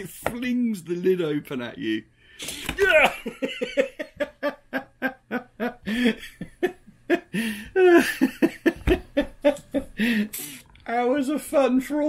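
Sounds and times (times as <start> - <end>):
man laughing: 2.4 - 10.3.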